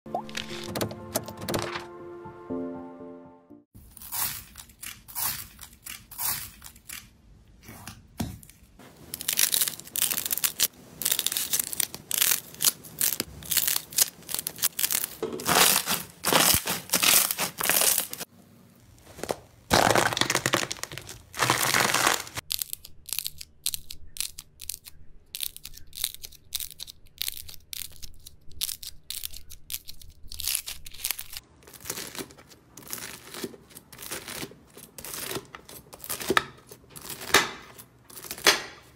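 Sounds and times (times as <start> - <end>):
foam slime crackling and popping: 9.0 - 23.3.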